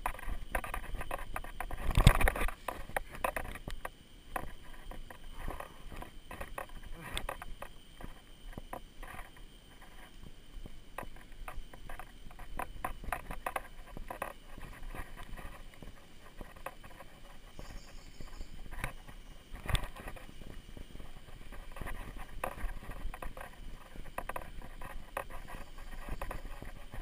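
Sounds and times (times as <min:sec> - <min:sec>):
unicycle rattling over bumps: 0:00.0 - 0:27.0
faint steady high tone: 0:17.4 - 0:21.2.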